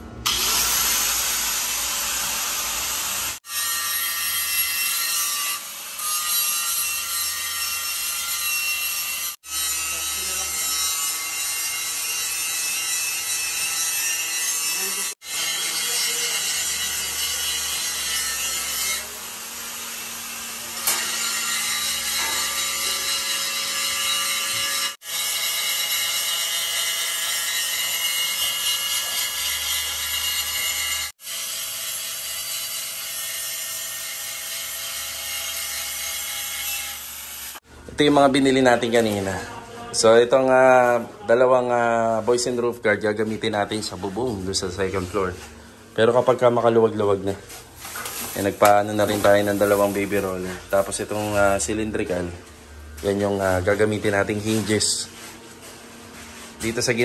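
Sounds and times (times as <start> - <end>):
power tool whining under load: 0.2 - 3.5.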